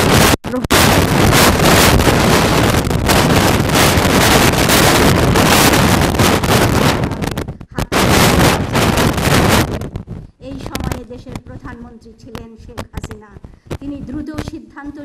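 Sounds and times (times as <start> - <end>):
loud rushing noise: 0.0 - 10.2.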